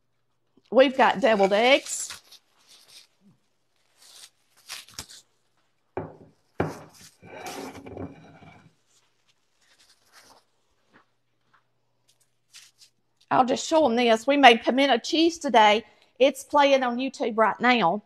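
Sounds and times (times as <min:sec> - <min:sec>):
plastic cling wrap crinkling: 0:00.5 - 0:07.6, 0:08.7 - 0:13.3.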